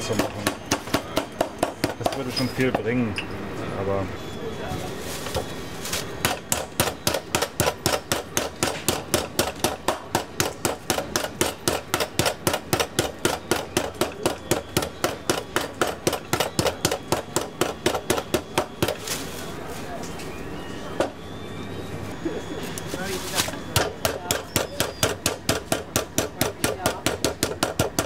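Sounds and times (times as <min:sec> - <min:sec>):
meat pounder beating cutlets: 0:00.0 - 0:02.8, 0:06.2 - 0:19.0, 0:23.7 - 0:28.0.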